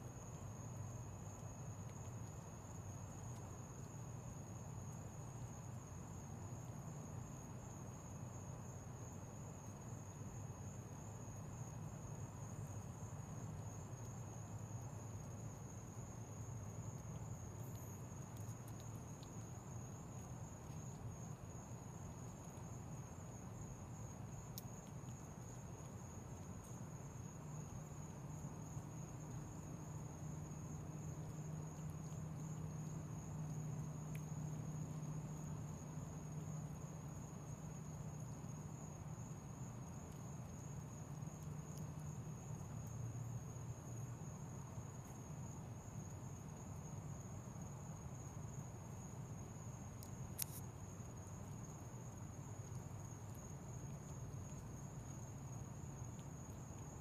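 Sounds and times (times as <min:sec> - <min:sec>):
crickets trilling: 0:00.0 - 0:57.0
faint clicks: 0:24.5 - 0:25.2, 0:50.0 - 0:50.7.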